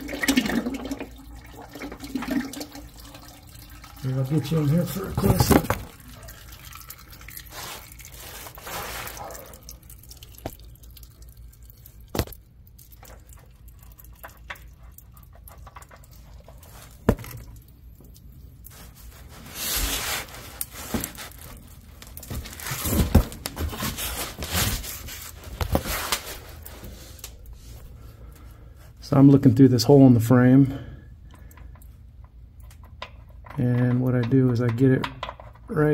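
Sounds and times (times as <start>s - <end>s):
rustling: 7.5s - 9.6s, 18.7s - 27.9s.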